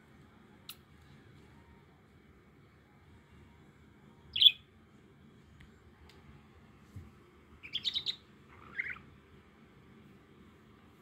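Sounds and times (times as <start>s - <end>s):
small bird chirping: 4.3s - 4.7s, 7.6s - 9.2s.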